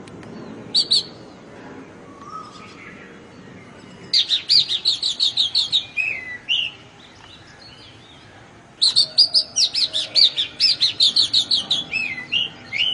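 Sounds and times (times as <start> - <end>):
bird singing whistles: 0.7 - 1.2, 2.1 - 2.9, 4.1 - 6.8, 8.8 - 12.9.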